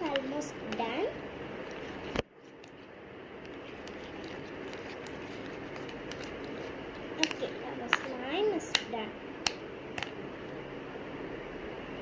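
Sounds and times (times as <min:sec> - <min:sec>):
spoon stirring slime: 0:01.7 - 0:08.9.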